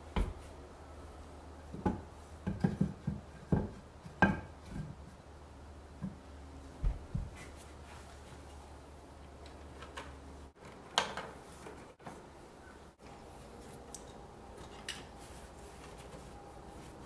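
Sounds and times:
rubbing and rustling: 6.8s - 8.8s, 14.5s - 17.0s.

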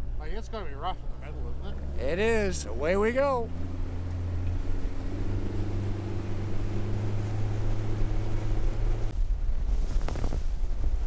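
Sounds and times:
outboard motor running: 1.0s - 9.1s
water rushing and splashing: 1.0s - 9.1s.

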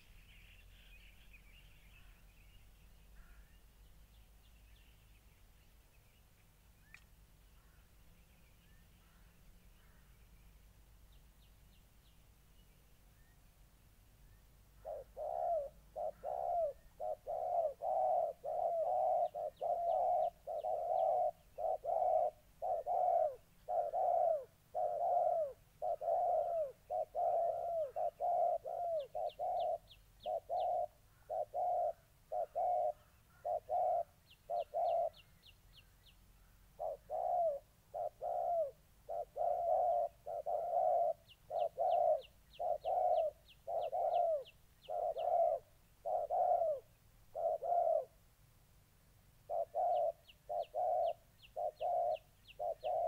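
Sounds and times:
doves cooing: 14.7s - 35.2s, 36.4s - 48.2s, 49.4s - 53.0s.

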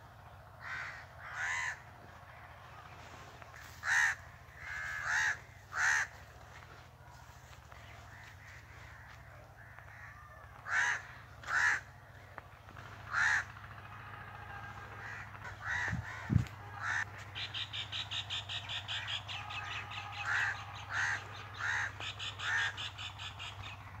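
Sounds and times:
low steady hum: 0.0s - 24.0s
crows cawing: 0.5s - 24.0s
fast pulsed bird chatter: 7.4s - 24.0s.

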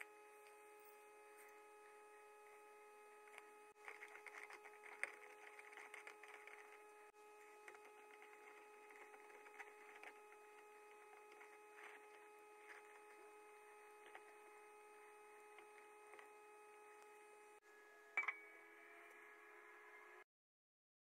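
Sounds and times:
faint steady hum: 0.0s - 20.2s
brush scrubbing metal part: 3.3s - 16.4s.

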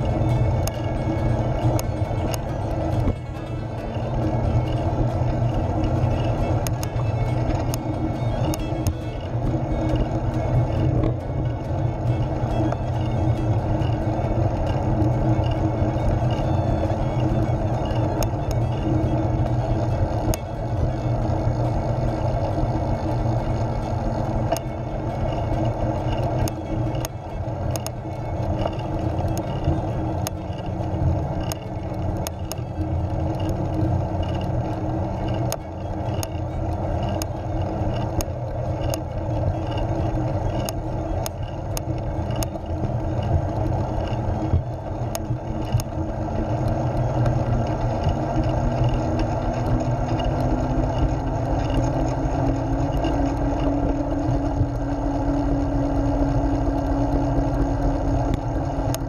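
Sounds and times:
small clicks and rattles: 0.0s - 59.0s
tyre and road rumble: 0.0s - 59.0s.

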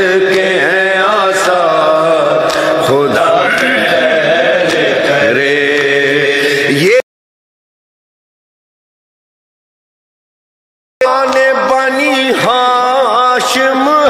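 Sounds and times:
man chanting a lament: 0.0s - 7.0s, 11.0s - 14.0s.

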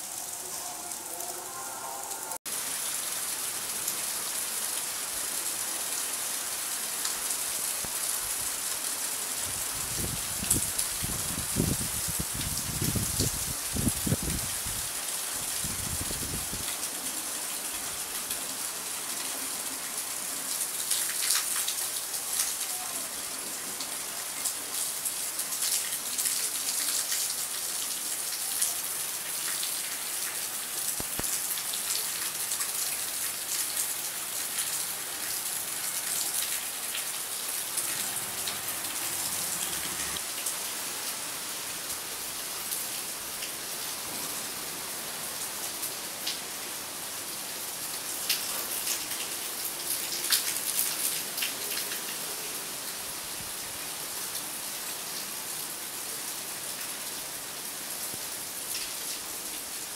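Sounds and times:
steady rain hiss: 0.0s - 59.9s.

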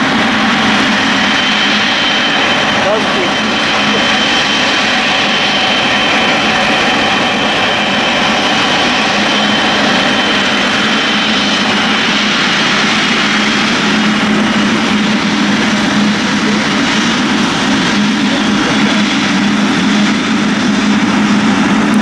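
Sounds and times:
jet engines rushing and whining: 0.0s - 22.0s.

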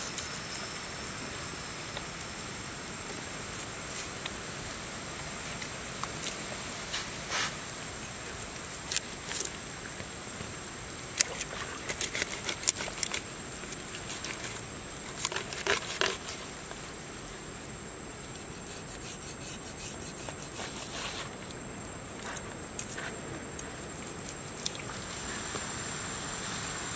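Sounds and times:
high-pitched whine: 0.0s - 5.2s
knife scraping fish skin: 11.2s - 13.2s, 15.2s - 16.4s, 18.5s - 21.4s.

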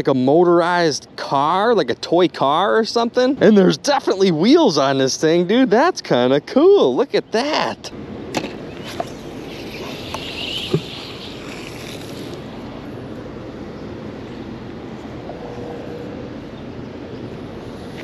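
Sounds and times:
wind on microphone: 8.3s - 18.0s.

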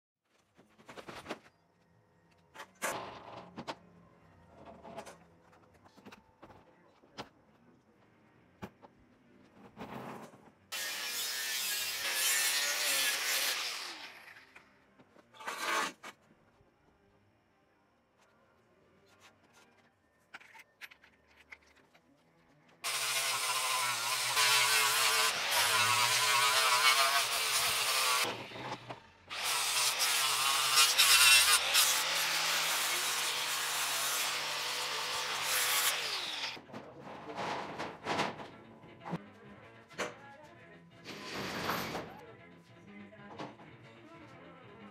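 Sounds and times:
angle grinder grinding steel: 10.8s - 14.5s, 22.8s - 36.6s.

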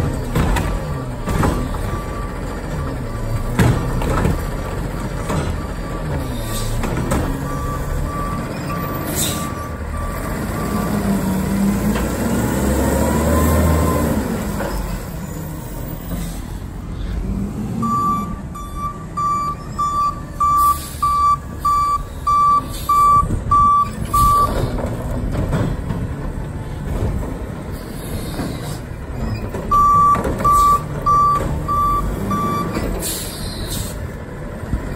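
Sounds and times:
garbage truck diesel engine: 0.0s - 34.9s
reverse alarm beeping: 17.8s - 24.6s, 29.7s - 32.8s.

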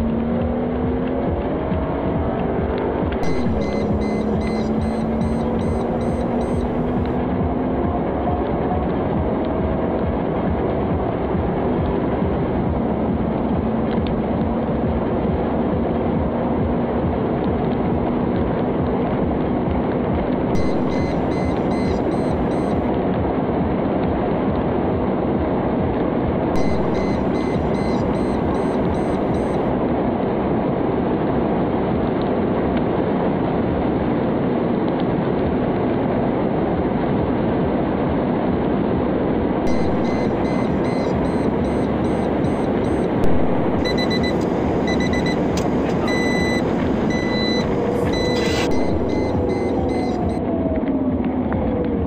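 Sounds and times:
car engine at high revs: 0.0s - 7.3s
dashboard warning chime beeping: 3.2s - 7.2s, 20.6s - 22.9s, 26.6s - 29.7s, 39.7s - 50.4s.

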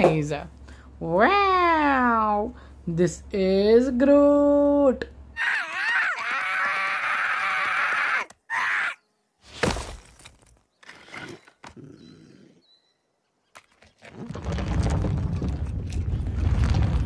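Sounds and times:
sharp woody thud: 9.5s - 10.3s.

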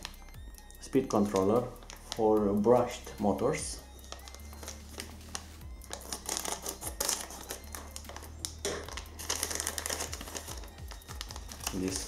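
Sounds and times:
plastic bag crinkling: 3.9s - 12.0s.

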